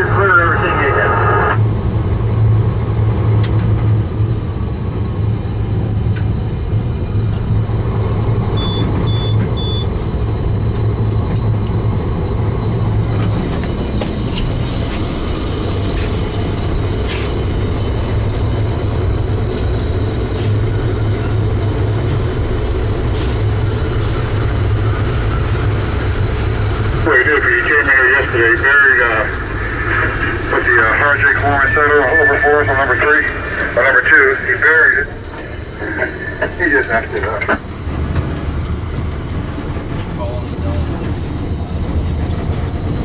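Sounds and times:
locomotive engine drone: 0.0 - 43.0
short high beeps: 8.6 - 9.9.

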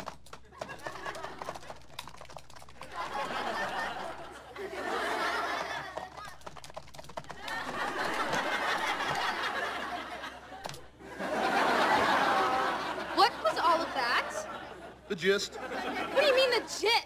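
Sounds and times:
rapid laptop keyboard typing: 0.0 - 4.2, 5.4 - 9.4
sitcom audience laughter: 0.5 - 1.8, 2.8 - 6.3, 7.4 - 17.0.

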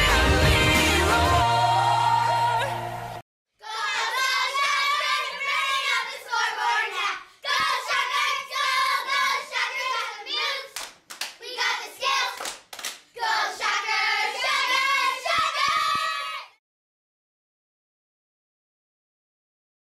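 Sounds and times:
girls singing together: 0.0 - 10.8, 13.2 - 16.2
hand claps: 10.7 - 11.4, 12.3 - 13.0.

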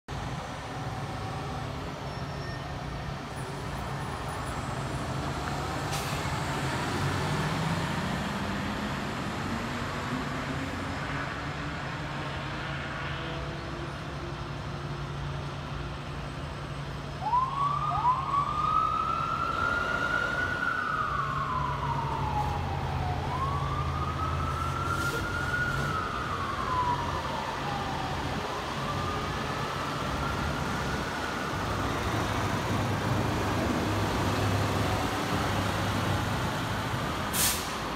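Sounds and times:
diesel engines rumbling: 0.1 - 37.9
fire truck siren wailing: 16.8 - 37.9.

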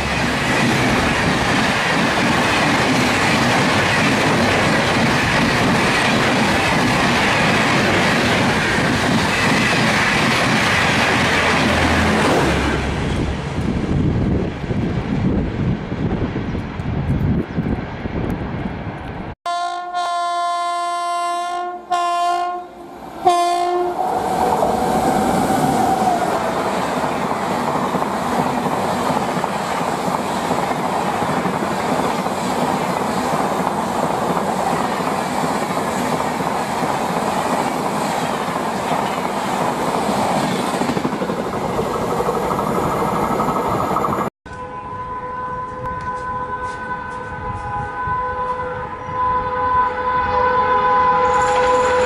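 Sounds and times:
train coaches rushing and rattling: 0.0 - 15.6, 22.8 - 44.3, 51.1 - 52.0
wind buffeting microphone: 0.0 - 19.4, 45.6 - 49.8
electric locomotive horn blasts: 19.5 - 25.2, 44.5 - 52.0.

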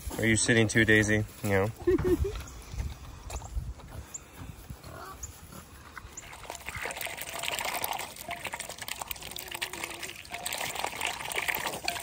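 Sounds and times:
duck splashing and slurping water: 5.7 - 12.0.

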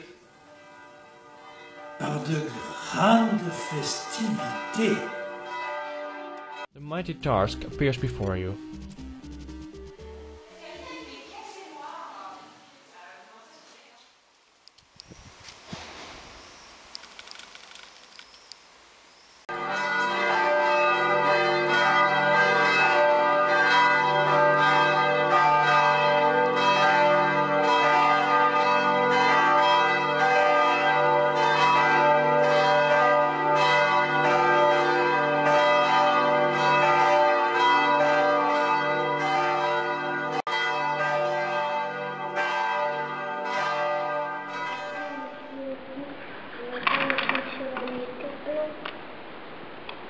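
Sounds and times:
church bells pealing: 0.0 - 11.4, 19.5 - 46.0.

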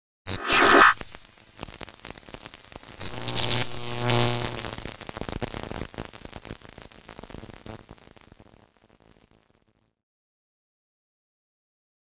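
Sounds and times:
electrical crackling and static: 0.3 - 9.8
loud buzzing hum: 3.0 - 4.9.

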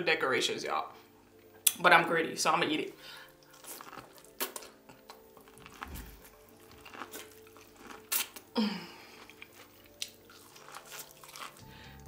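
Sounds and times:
faint background music: 0.0 - 12.0
person eating corn: 3.3 - 12.0.

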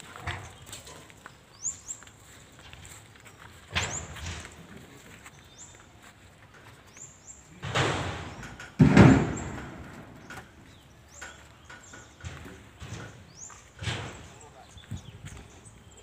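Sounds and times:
heavy wooden thud: 7.6 - 10.6.

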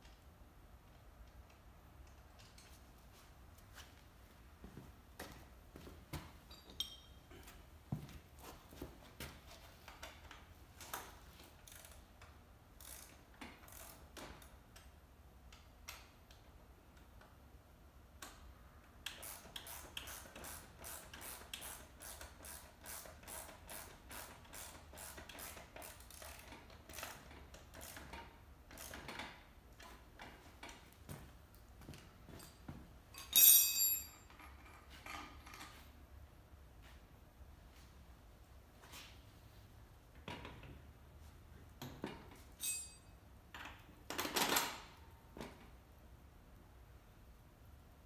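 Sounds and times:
ratchet wrench clicking: 11.6 - 14.9, 19.0 - 29.2.

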